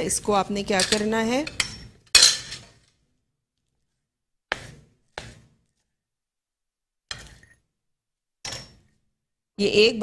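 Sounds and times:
knife chopping on cutting board: 4.5s - 5.8s.

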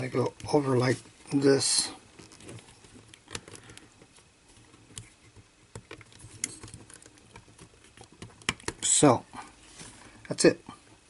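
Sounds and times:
small clicks of plastic parts: 2.2s - 4.1s, 4.9s - 8.9s.

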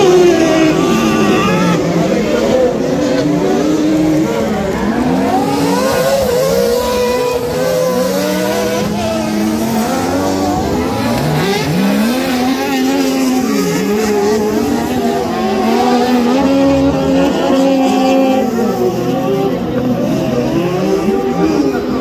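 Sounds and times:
racing buggy engines revving: 0.0s - 22.0s.

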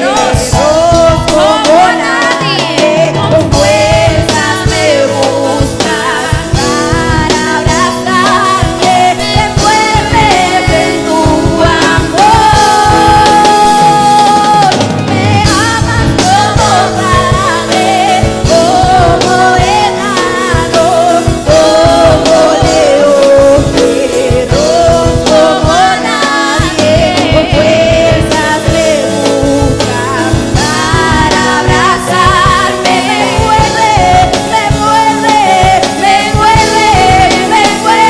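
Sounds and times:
girl singing into a microphone: 0.0s - 38.0s
instrumental accompaniment with drums: 0.0s - 38.0s.

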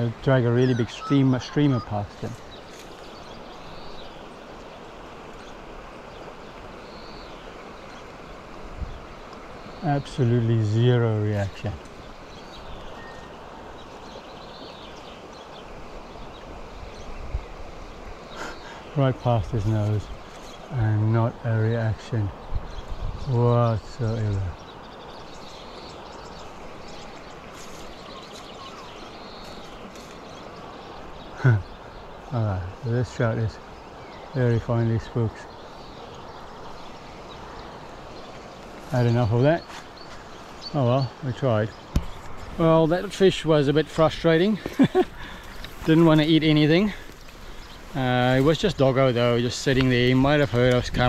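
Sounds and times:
river water flowing: 0.0s - 51.0s
faint bird chirps: 0.4s - 4.5s, 11.6s - 17.3s, 24.0s - 32.8s.

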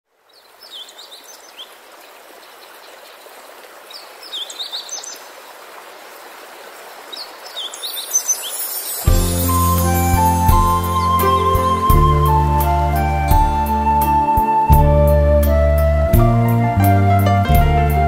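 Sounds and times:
flowing water: 0.1s - 18.0s
bird chirping: 0.3s - 1.8s, 3.9s - 5.3s, 7.1s - 14.8s.

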